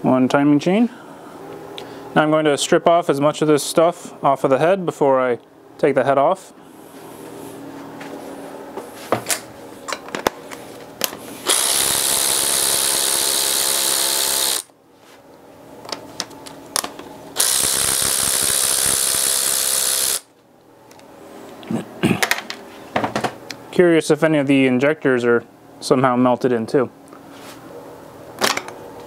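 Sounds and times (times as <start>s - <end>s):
power ratchet running: 11.4s - 14.7s, 17.4s - 20.3s.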